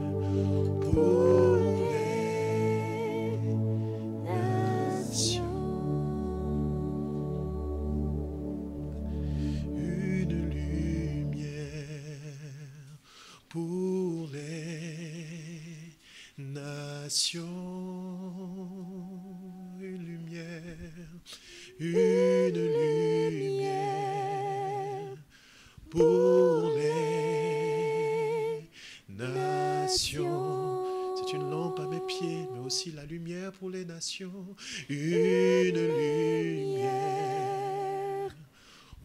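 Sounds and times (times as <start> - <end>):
man singing slowly: 0.0 - 3.4, 9.8 - 38.4
low keyboard tone: 0.0 - 11.8.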